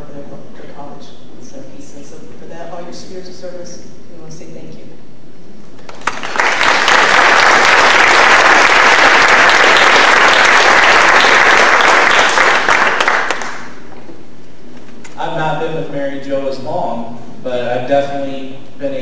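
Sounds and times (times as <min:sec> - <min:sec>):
audience applauding: 0:05.8 - 0:13.8.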